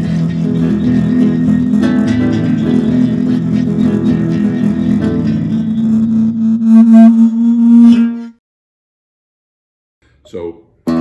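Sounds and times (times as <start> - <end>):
classical guitar plucked: 0.0 - 7.4
low drone: 0.0 - 8.4.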